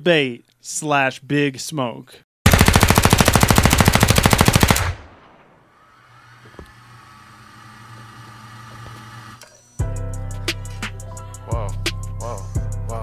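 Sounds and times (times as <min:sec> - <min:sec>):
machine-gun burst: 0:02.5 - 0:05.8.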